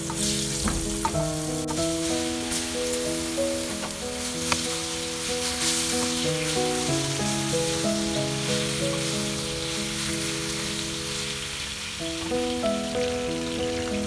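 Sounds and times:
wooden spatula stirring: 0:00.0 - 0:07.9
food sizzling in hot oil: 0:00.0 - 0:14.0
instrumental background music: 0:00.0 - 0:14.0.

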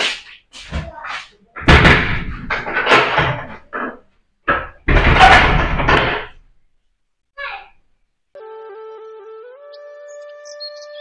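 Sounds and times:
wooden door banging and rattling: 0:01.6 - 0:06.6.

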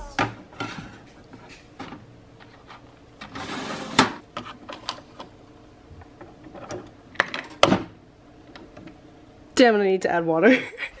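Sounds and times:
drawer sliding: 0:02.5 - 0:05.0.

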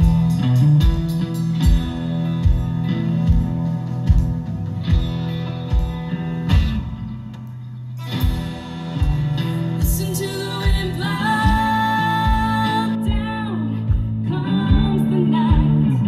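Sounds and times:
live rock band playing: 0:00.0 - 0:16.0
woman singing: 0:09.8 - 0:16.0.

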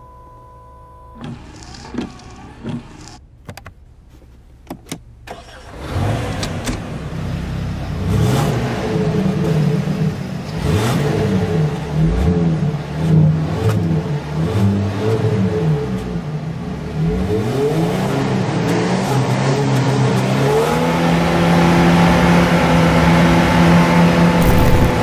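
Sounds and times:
car engine revving: 0:05.4 - 0:25.0
sharp clicks: 0:24.4 - 0:25.0.

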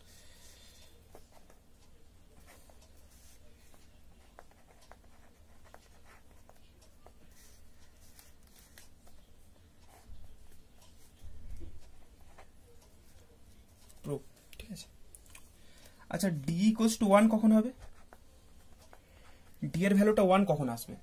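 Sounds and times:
pen scratching on paper: 0:02.4 - 0:09.0.

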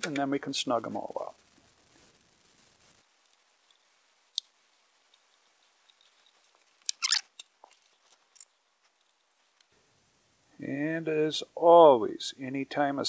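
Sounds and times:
metallic screw clicks: 0:05.9 - 0:08.5.

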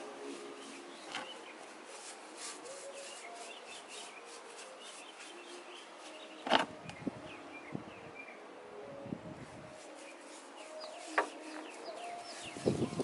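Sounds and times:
birds chirping: 0:00.0 - 0:13.0
hand tool scraping cement: 0:09.8 - 0:13.0.

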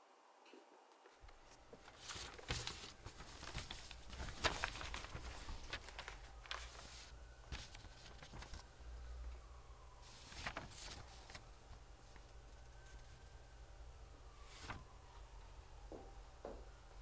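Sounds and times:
low steady hum: 0:00.0 - 0:17.0
paper and plastic crinkling: 0:01.2 - 0:08.7, 0:10.0 - 0:13.2.

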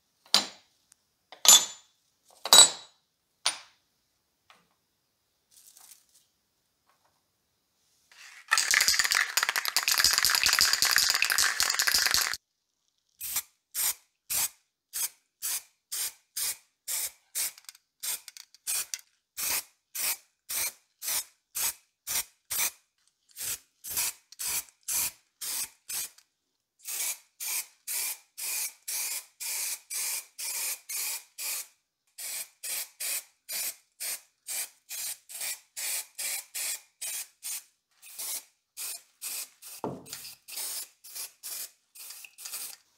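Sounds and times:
aerosol spray can hissing: 0:08.2 - 0:12.4.

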